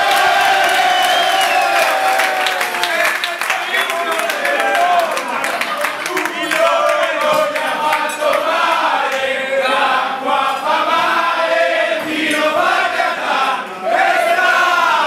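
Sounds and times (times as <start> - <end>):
men singing in chorus: 6.0 - 15.0.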